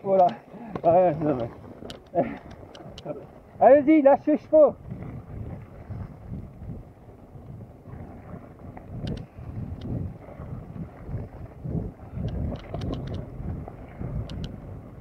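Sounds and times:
wind buffeting microphone: 0.0 - 15.0
mountain bike rolling on dirt: 3.1 - 15.0
bike clicks and rattles: 12.2 - 13.2.

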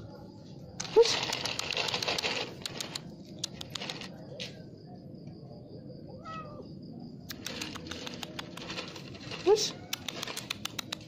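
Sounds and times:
cat meowing: 6.2 - 6.7.

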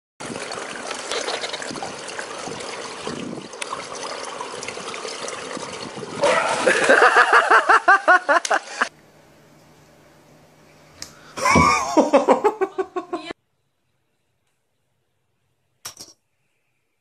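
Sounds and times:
loud water splash: 0.2 - 7.6
pool water lapping: 0.2 - 8.9.

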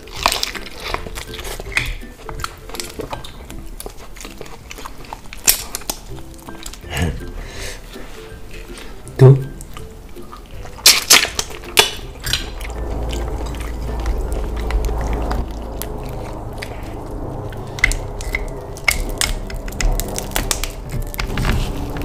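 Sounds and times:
crab shell creaking and cracking: 0.0 - 22.0
low hum: 12.0 - 22.0.

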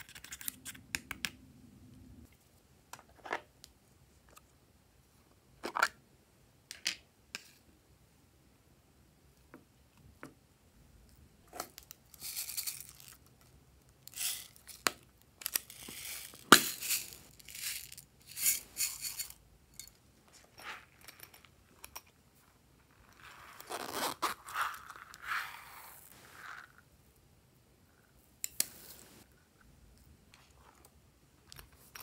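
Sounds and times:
beads hissing as poured: 12.1 - 13.2, 14.1 - 14.9, 15.5 - 19.4, 24.5 - 26.8
seed beads rattling: 12.1 - 13.2, 14.1 - 19.4.

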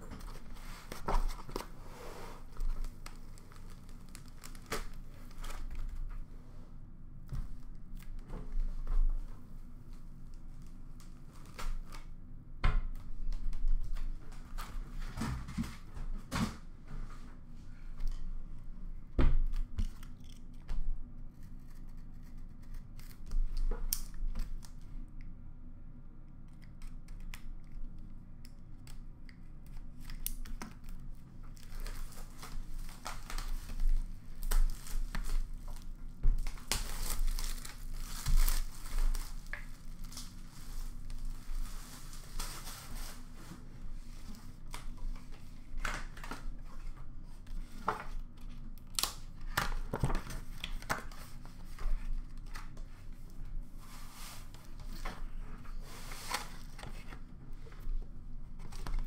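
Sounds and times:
plastic shrink-wrap tearing: 2.6 - 5.9, 29.9 - 43.2.

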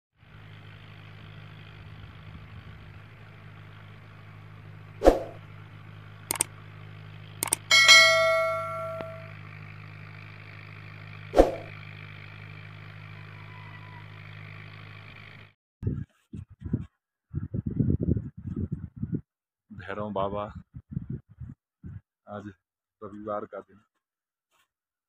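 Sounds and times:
steady low hum: 0.3 - 12.9
quick clicks: 6.3 - 6.5, 7.4 - 7.7
bell-like notification ding: 7.4 - 9.4.

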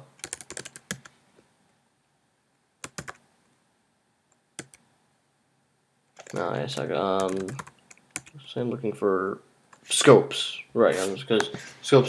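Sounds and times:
typing on computer keyboard: 0.2 - 1.1, 2.8 - 3.2, 4.6 - 4.8, 6.2 - 8.4.

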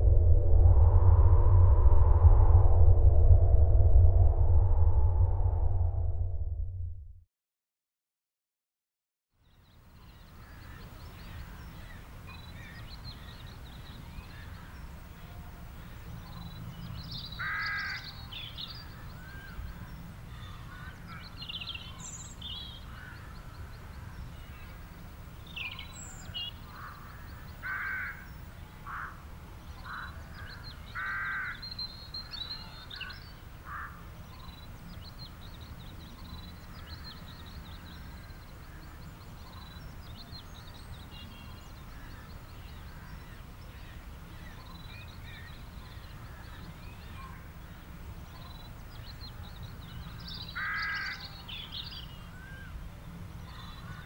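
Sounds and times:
steady low rumble: 0.0 - 7.2
harsh bird calls: 17.2 - 24.7, 50.0 - 52.7.

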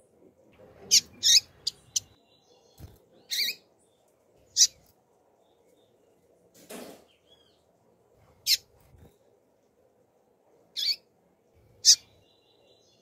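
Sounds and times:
bird chip calls: 0.8 - 3.6, 4.5 - 4.8, 10.8 - 11.1, 11.8 - 12.2.

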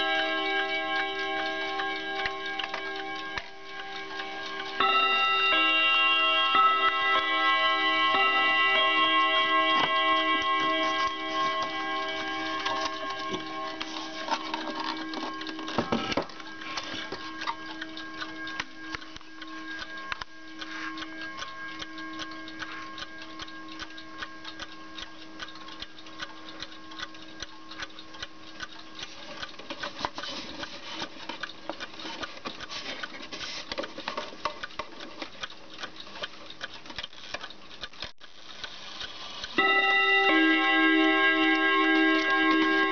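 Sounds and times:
clock strike ringing: 0.0 - 29.5, 39.5 - 42.9
mantel clock ticking: 0.0 - 42.9.

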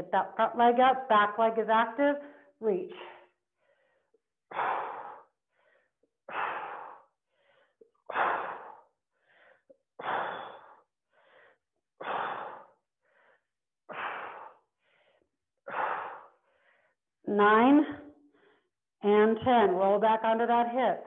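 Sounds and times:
woman breathing hard: 2.2 - 17.1.

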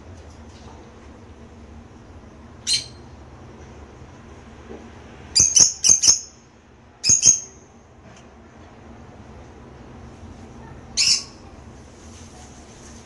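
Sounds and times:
lovebirds chirping squawks: 2.6 - 3.1, 5.4 - 6.4, 7.0 - 7.6, 11.0 - 11.4.

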